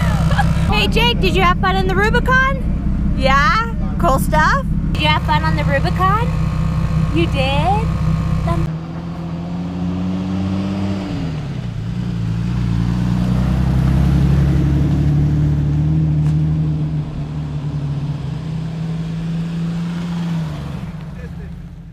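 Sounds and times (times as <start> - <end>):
motor humming: 0.0 - 8.7.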